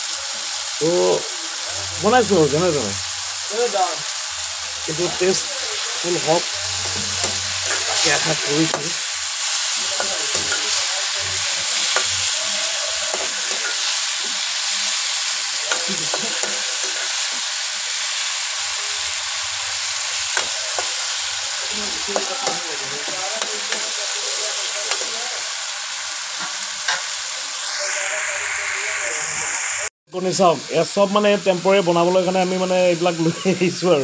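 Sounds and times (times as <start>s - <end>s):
vegetables sizzling in oil: 0.0s - 34.0s
metal spatula scraping pan: 6.2s - 14.0s.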